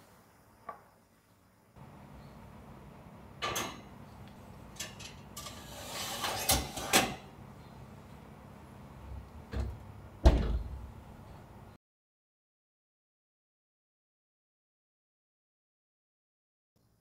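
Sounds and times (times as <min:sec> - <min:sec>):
oven door shutting: 0:03.4 - 0:03.9, 0:04.7 - 0:07.3, 0:09.5 - 0:10.9
oven rack scraping: 0:04.7 - 0:07.3.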